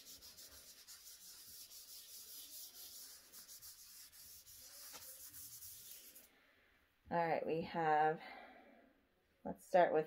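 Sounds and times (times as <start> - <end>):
eraser scrubbing a tabletop: 0.0 - 6.3.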